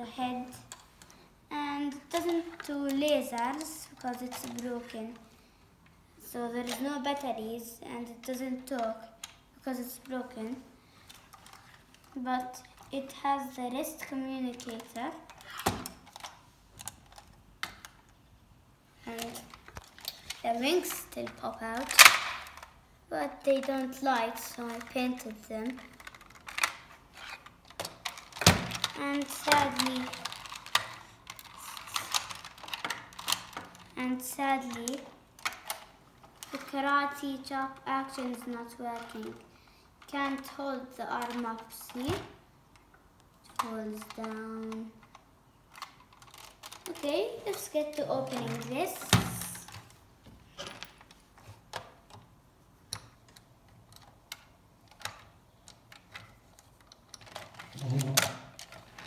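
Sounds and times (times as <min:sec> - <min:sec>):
plastic toy clicks and knocks: 0:19.2 - 0:22.7, 0:23.6 - 0:34.0, 0:34.6 - 0:39.4, 0:40.1 - 0:49.9, 0:52.9 - 0:59.0.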